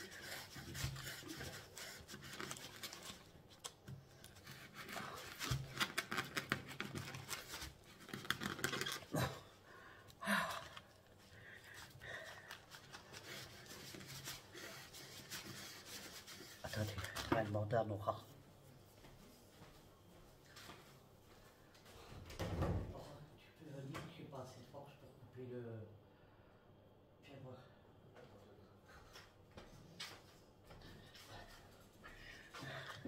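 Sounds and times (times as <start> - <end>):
knife sawing through coir brick: 0.0 - 2.6
plastic bag crinkling: 4.4 - 9.2.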